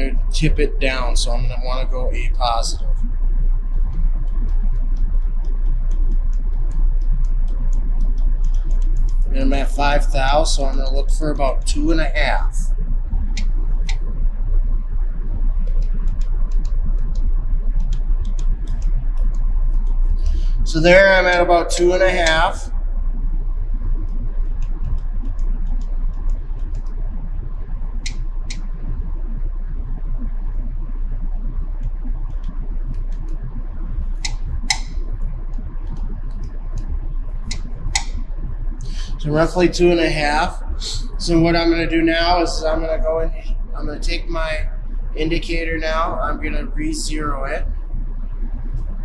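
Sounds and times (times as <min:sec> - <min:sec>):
low machine hum: 0:00.0 - 0:49.0
short irregular clicks: 0:03.7 - 0:09.3, 0:24.0 - 0:27.0, 0:34.2 - 0:38.2.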